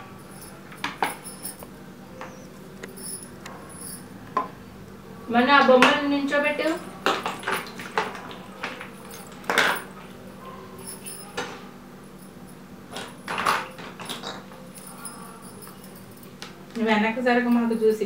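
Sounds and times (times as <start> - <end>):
plastic toys clattering on tiles: 6.6 - 10.2, 12.9 - 15.7.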